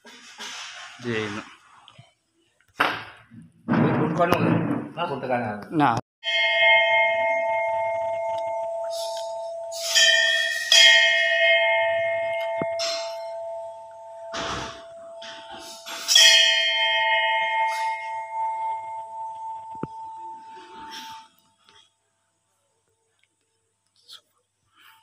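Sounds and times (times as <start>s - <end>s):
bell cluster ringing: 6.2s - 21.4s.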